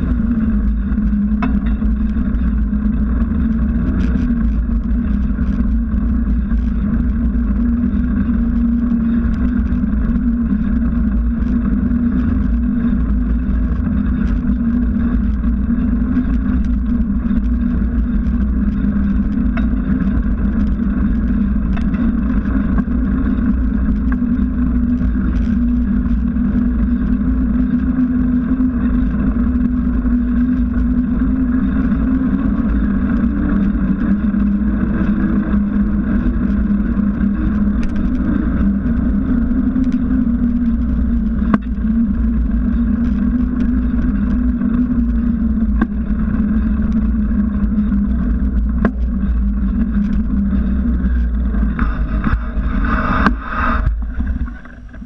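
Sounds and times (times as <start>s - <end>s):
bicycle tyre rolling on asphalt: 0.0s - 55.0s
faint ticks: 0.0s - 55.0s.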